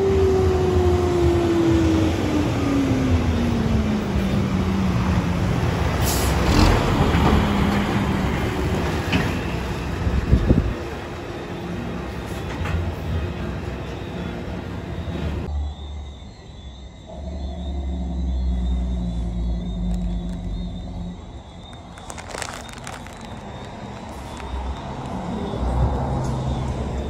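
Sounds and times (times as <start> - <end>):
diesel truck engine running: 17.8 - 27.0.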